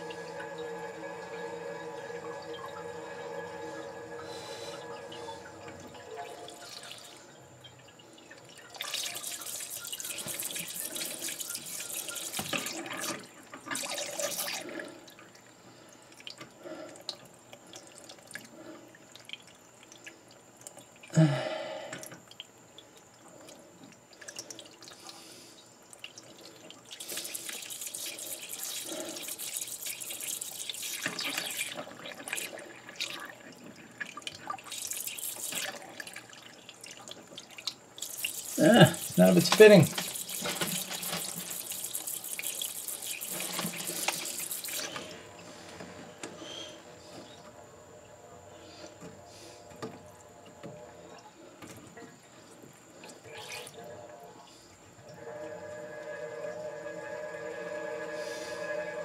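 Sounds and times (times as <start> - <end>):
faint whining tone: 0.0 - 10.0, 44.9 - 59.0
water spurting and hissing from hose: 8.8 - 15.1, 24.3 - 47.3, 52.3 - 53.8.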